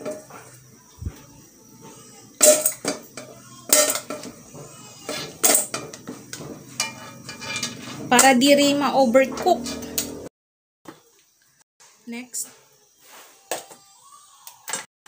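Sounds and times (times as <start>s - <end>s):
wooden spatula scraping wok: 4.1s - 10.3s.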